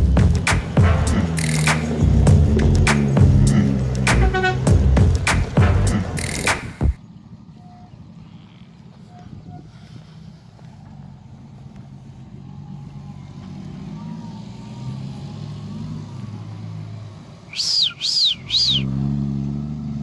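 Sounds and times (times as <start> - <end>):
vehicle engine driving on grass: 0.0 - 20.0
shrill whistle-like calls: 6.2 - 6.9, 17.5 - 19.0.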